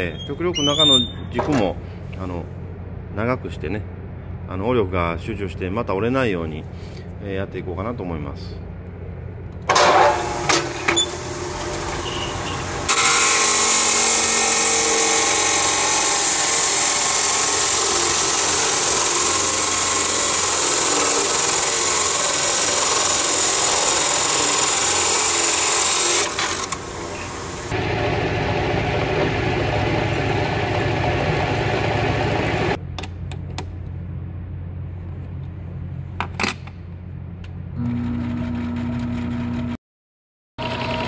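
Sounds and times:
cut-off saw cutting metal: 9.7s - 32.8s.

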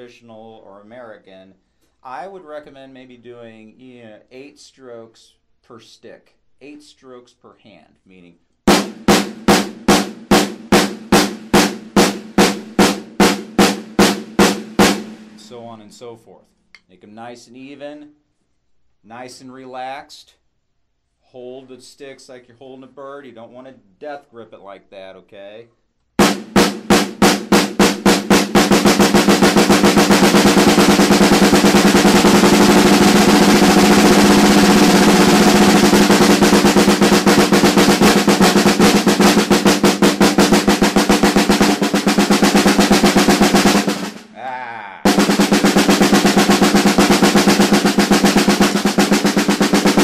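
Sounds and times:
snare drum roll: 8.7s - 15.9s, 26.2s - 50.0s.

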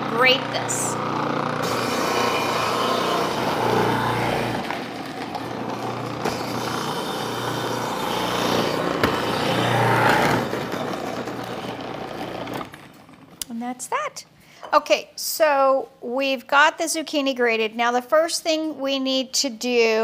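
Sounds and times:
food processor shredding: 0.0s - 13.4s.

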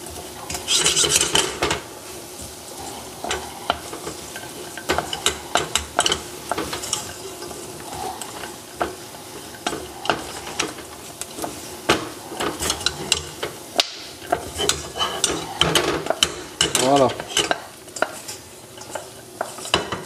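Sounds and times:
nuts and spatula scraping pan: 0.0s - 20.0s
sugar sizzling: 0.0s - 20.0s.

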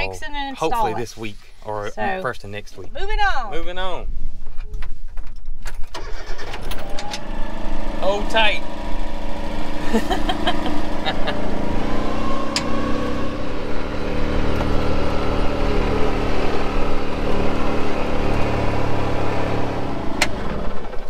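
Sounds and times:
utility vehicle engine running: 6.0s - 21.0s.

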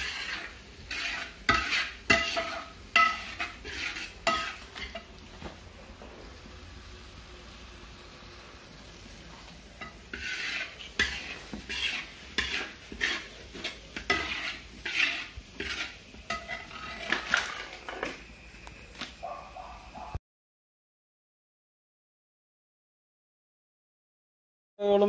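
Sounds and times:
utensil scraping across pan: 0.0s - 6.1s, 8.7s - 18.3s.

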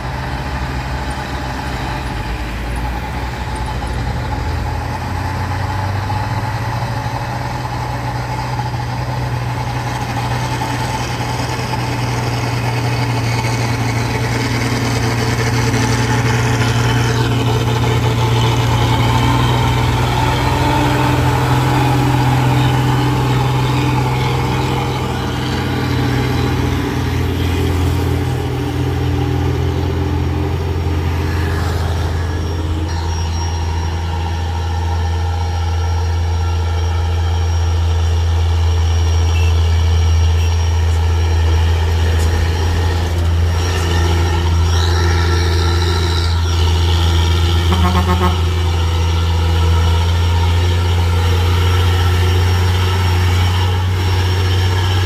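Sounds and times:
truck diesel engine idling: 0.0s - 55.0s.

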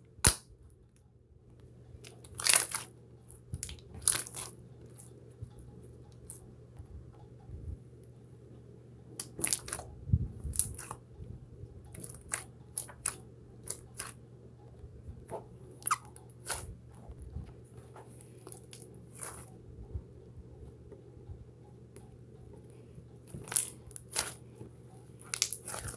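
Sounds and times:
faint low hum: 0.0s - 25.9s
slime popping and crackling: 2.1s - 2.9s, 3.6s - 4.5s, 9.2s - 9.8s, 10.5s - 11.0s, 12.0s - 14.2s, 15.8s - 16.7s, 23.3s - 24.4s, 25.2s - 25.9s.

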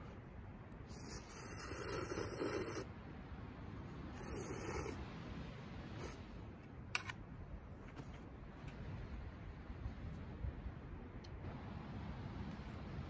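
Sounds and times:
person slurping noodles: 0.9s - 2.9s, 4.2s - 5.0s.

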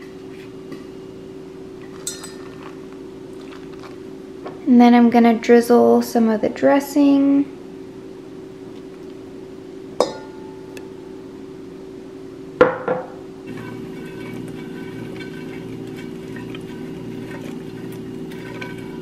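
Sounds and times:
clinks on a metal bowl: 1.8s - 2.7s, 10.0s - 10.6s
spatula scraping a skillet: 13.5s - 19.0s.

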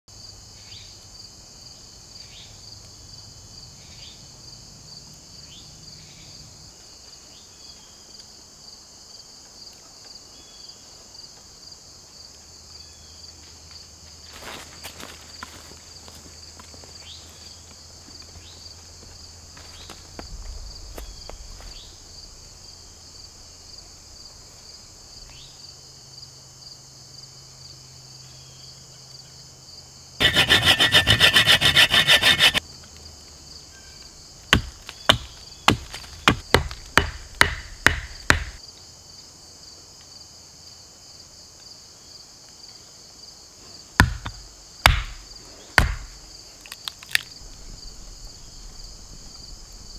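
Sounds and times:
insects buzzing: 0.1s - 39.8s, 40.6s - 49.9s
loud rasping: 30.2s - 32.6s
sharp wooden knocks: 30.2s - 32.6s, 34.6s - 38.6s, 44.0s - 45.2s, 45.8s - 46.1s
axe striking a log: 34.5s - 38.6s, 44.0s - 45.2s, 45.8s - 46.2s.

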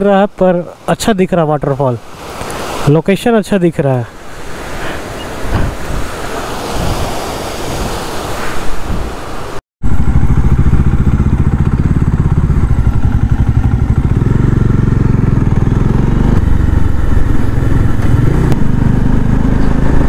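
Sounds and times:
motorcycle engine running: 9.8s - 20.0s.

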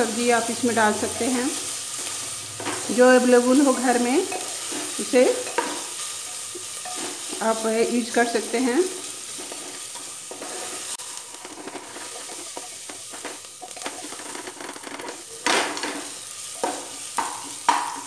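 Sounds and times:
onions sizzling in oil: 0.0s - 18.0s
wooden spatula scraping pot: 3.8s - 7.8s, 8.5s - 17.9s.

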